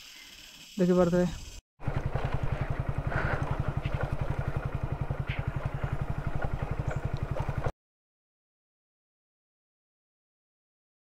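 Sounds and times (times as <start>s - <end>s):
knocks and rattles of bike: 1.4s - 7.7s
motorcycle engine at low revs: 1.8s - 7.7s.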